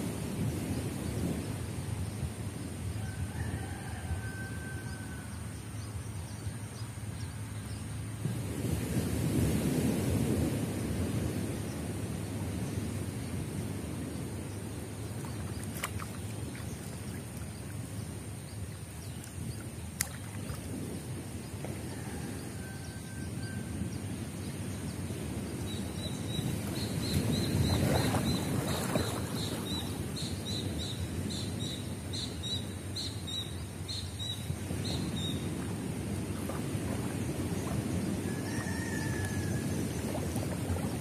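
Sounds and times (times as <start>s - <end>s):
low rumble of wind and water: 0.0s - 41.0s
water splashing and sloshing: 12.3s - 22.0s, 25.4s - 30.8s, 33.7s - 41.0s.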